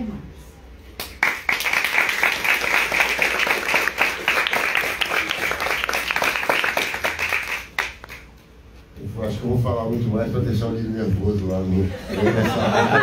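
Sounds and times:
audience applauding: 0:01.2 - 0:08.3.

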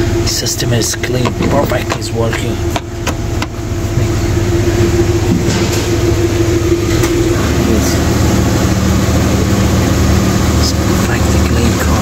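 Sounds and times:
low mechanical drone: 0:00.0 - 0:12.0.

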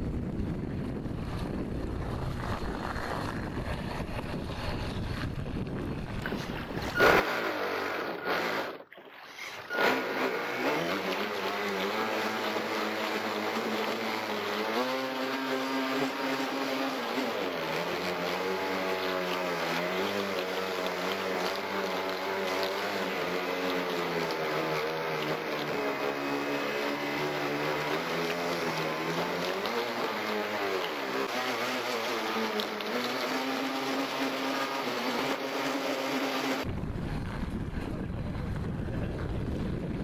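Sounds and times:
electric motor whine: 0:00.7 - 0:08.8, 0:09.4 - 0:36.7
water rushing along hull: 0:06.0 - 0:36.7.

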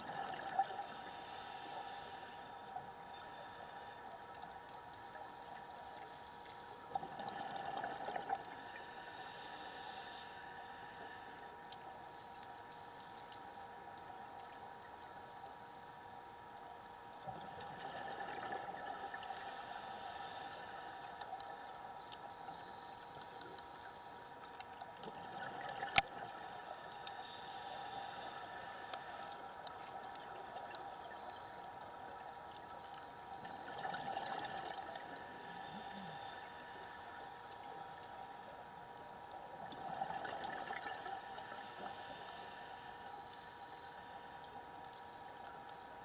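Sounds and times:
faint steady hum: 0:00.0 - 0:46.0
exhaled bubbles underwater: 0:06.9 - 0:08.4, 0:33.4 - 0:35.1, 0:39.6 - 0:41.2.

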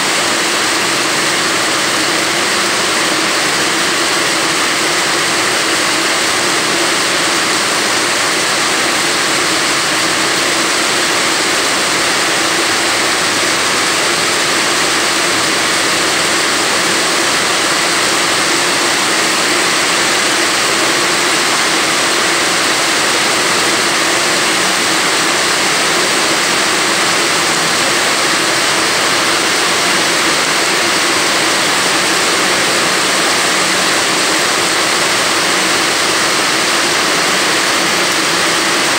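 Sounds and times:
heavy rain on a metal roof: 0:00.0 - 0:38.9.

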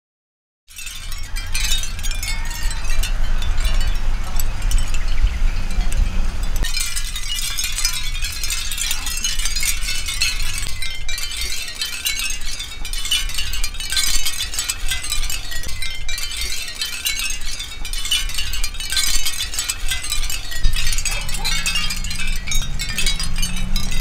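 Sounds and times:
shell wind chime tinkling: 0:00.7 - 0:24.0.

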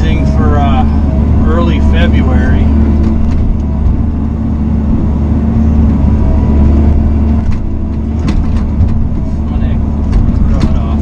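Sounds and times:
diesel engine running under load: 0:00.0 - 0:11.0
sharp knocks: 0:07.4 - 0:09.4, 0:10.0 - 0:11.0.

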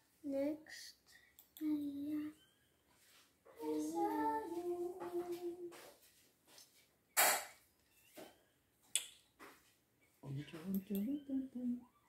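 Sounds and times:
quiet clicks: 0:01.4 - 0:01.7.

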